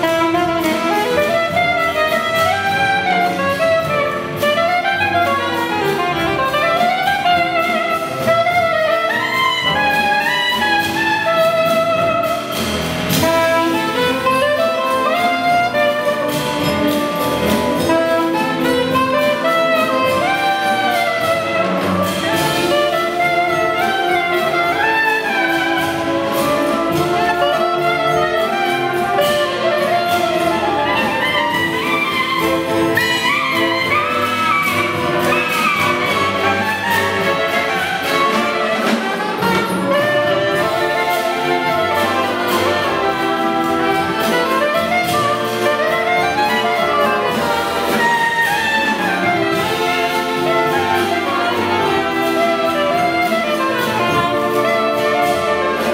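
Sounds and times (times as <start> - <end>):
drums and cymbals: 0.0 - 55.9
jazz big band playing: 0.0 - 55.9
soprano saxophone solo: 0.0 - 55.9.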